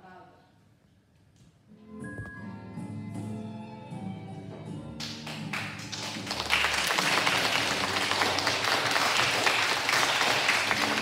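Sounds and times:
audience clapping: 5.0s - 11.0s.

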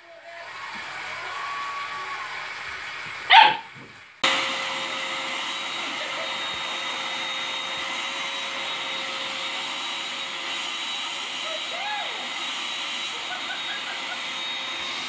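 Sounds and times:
puppy barking: 3.3s - 3.7s
vacuum cleaner whine: 4.2s - 15.0s.

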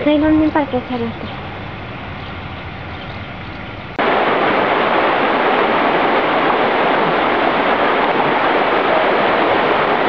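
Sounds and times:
white water rushing: 4.0s - 10.0s.

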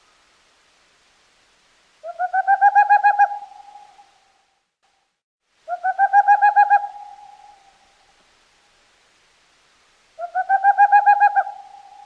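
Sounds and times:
owl hooting trills: 2.0s - 4.2s, 5.7s - 7.9s, 10.2s - 12.0s.

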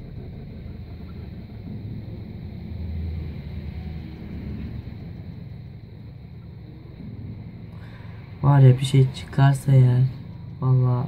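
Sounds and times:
faint high whine: 0.0s - 11.0s
low outdoor rumble: 0.0s - 11.0s.

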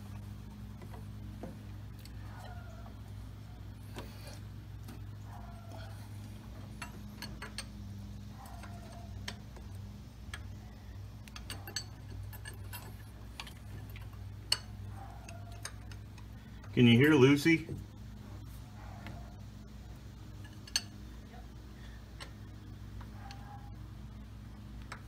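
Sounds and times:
steady low hum: 0.0s - 25.0s
hands clicking and tapping parts: 8.4s - 10.6s.

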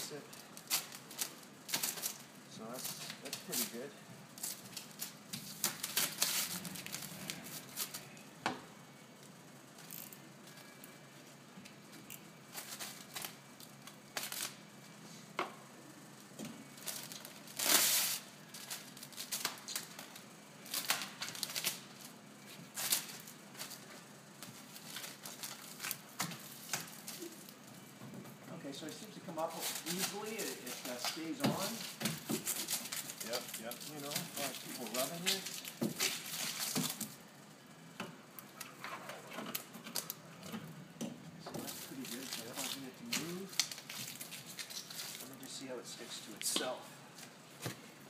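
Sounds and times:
plastic film crinkling and peeling: 0.0s - 8.3s, 9.8s - 15.0s, 16.6s - 27.8s, 28.6s - 37.4s, 38.4s - 40.5s, 41.6s - 47.6s.

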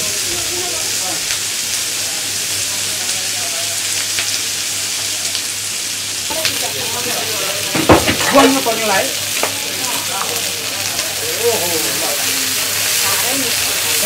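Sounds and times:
food sizzling in oil: 0.0s - 14.0s
knock on a griddle: 7.7s - 8.6s.

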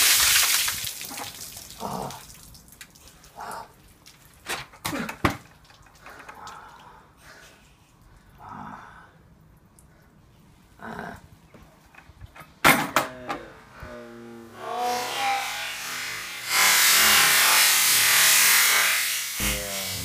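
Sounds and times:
water splashing onto paving: 0.0s - 7.0s
water dripping: 0.0s - 7.4s, 9.4s - 10.1s.

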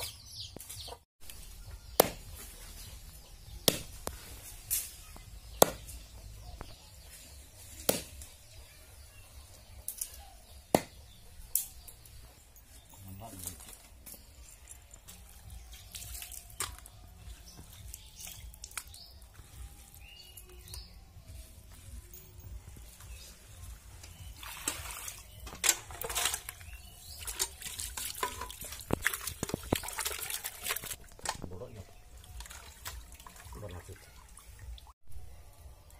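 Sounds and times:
knife chopping on wooden block: 1.9s - 2.3s, 3.6s - 3.9s, 5.6s - 5.9s, 10.7s - 11.0s
water splashing in metal bucket: 24.2s - 31.5s, 32.1s - 34.9s.

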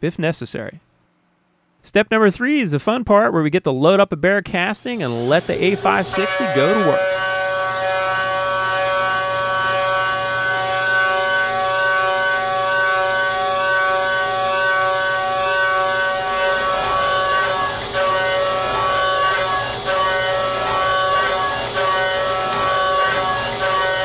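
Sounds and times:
milling spindle whine: 4.8s - 24.0s.

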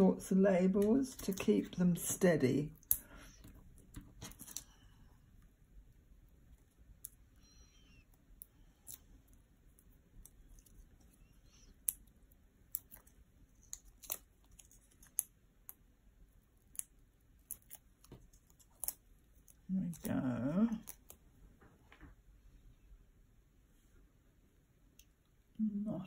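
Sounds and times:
backing being peeled: 12.7s - 15.8s, 16.6s - 21.2s.

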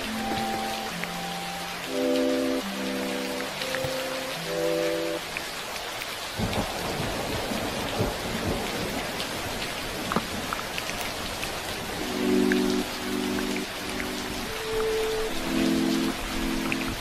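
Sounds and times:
steady rain falling: 0.0s - 17.0s
rolling thunder rumble: 6.4s - 11.5s.

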